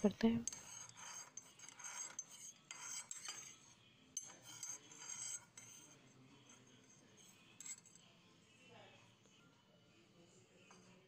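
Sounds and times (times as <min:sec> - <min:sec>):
spoon stirring in a ceramic cup: 0:00.0 - 0:08.3, 0:10.5 - 0:11.0
spoon clinking against cup: 0:00.4 - 0:05.8.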